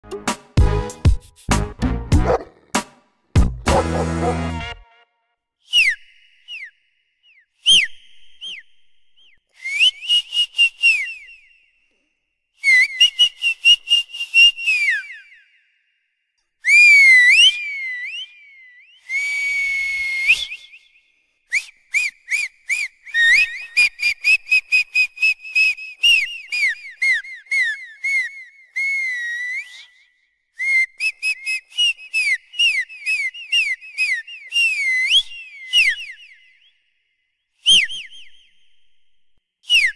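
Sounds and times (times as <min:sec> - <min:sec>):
high-pitched whistle chirps: 0:05.7 - 0:11.8, 0:16.6 - 0:39.9.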